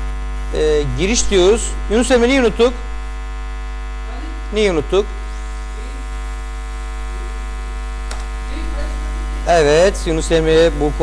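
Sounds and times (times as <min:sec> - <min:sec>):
electrical mains hum: 0:00.0 - 0:11.0
person speaking: 0:00.5 - 0:02.8, 0:04.1 - 0:06.1, 0:07.0 - 0:07.5, 0:08.5 - 0:11.0
sharp click: 0:08.0 - 0:08.3.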